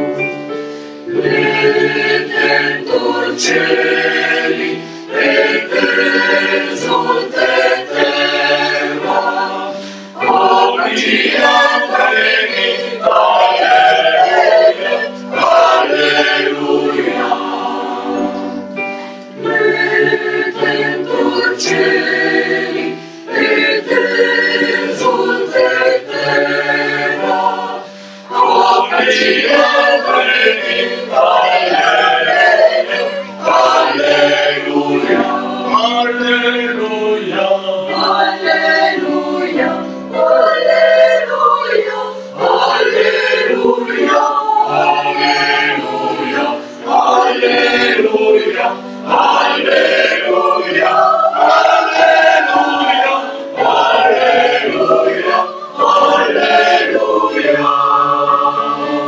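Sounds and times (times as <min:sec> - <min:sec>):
singers breathing: 0:00.6 - 0:01.1, 0:04.8 - 0:05.2, 0:09.7 - 0:10.3, 0:18.7 - 0:19.4, 0:22.9 - 0:23.3, 0:27.8 - 0:28.3
mixed choir singing: 0:00.9 - 0:59.0.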